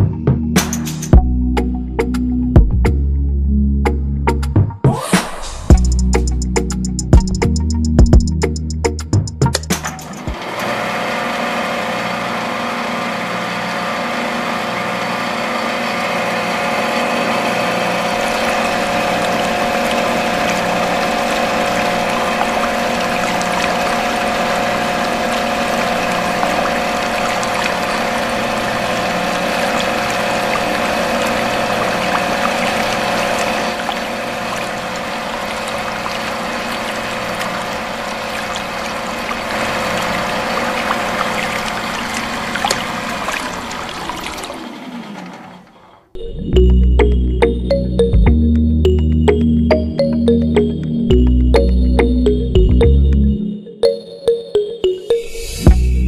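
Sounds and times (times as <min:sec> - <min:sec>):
water pouring from spout: 0:17.5 - 0:45.0.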